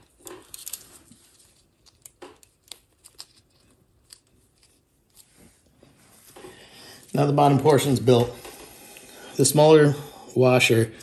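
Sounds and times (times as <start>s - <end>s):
rustling: 0.0s - 7.3s.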